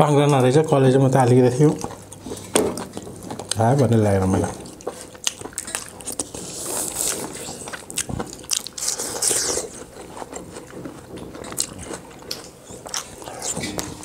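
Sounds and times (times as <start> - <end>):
wet crunchy bites and chewing: 4.5 - 13.9.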